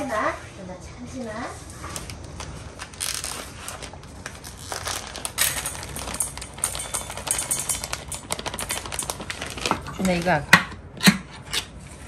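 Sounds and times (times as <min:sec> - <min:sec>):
plastic bag crinkling: 0:01.9 - 0:10.5
kibble rattling into metal bowl: 0:05.2 - 0:10.4.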